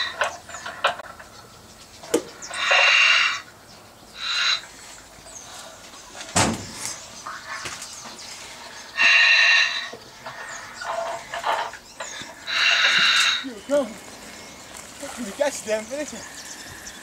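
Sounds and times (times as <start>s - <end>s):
loud animal calls: 0.0s - 17.0s
thump: 6.3s - 6.9s.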